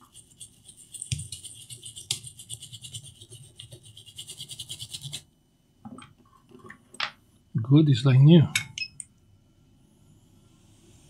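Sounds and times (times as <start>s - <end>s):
brush scrubbing circuit board: 0.0s - 5.3s.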